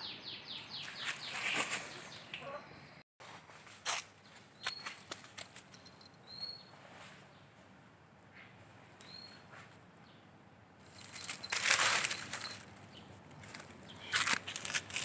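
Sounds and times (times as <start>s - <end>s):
palm fronds rustling and crackling: 1.0s - 2.2s, 10.8s - 15.0s
soft ticks in leaves: 10.9s - 12.6s, 13.3s - 15.0s.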